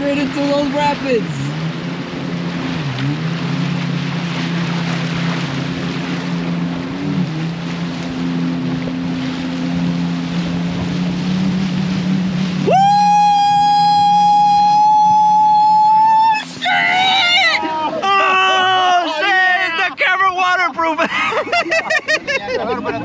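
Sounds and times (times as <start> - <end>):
outboard motor running: 0.0 - 23.0
water rushing and splashing: 0.0 - 23.0.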